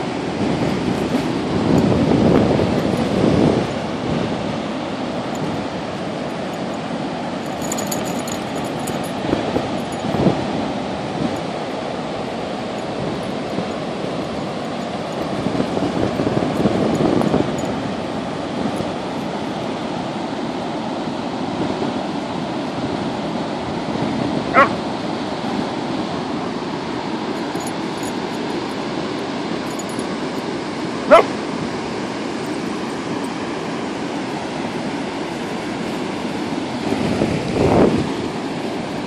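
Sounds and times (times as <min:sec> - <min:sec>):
wind: 0:00.0 - 0:39.0
dog yipping: 0:24.5 - 0:24.8, 0:31.1 - 0:31.4.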